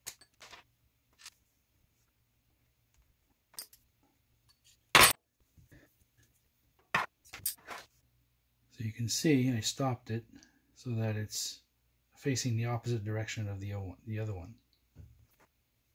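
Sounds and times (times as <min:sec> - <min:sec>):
clinks of small metal tools: 0:00.0 - 0:01.4, 0:03.5 - 0:05.2, 0:07.0 - 0:07.9.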